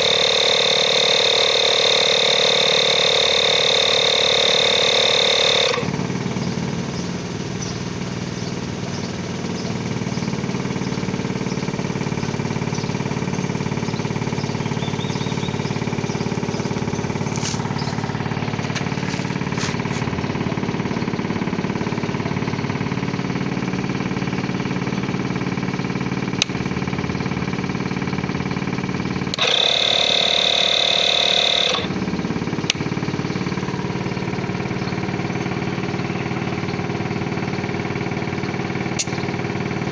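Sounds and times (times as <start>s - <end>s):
air compressor running: 0.0s - 39.9s
sharp clicks: 29.3s - 31.9s, 38.9s - 39.3s.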